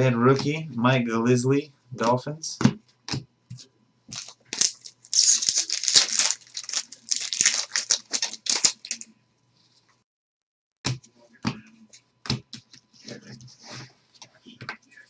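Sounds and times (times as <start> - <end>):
foil wrapper tearing and crinkling: 4.1 - 9.1.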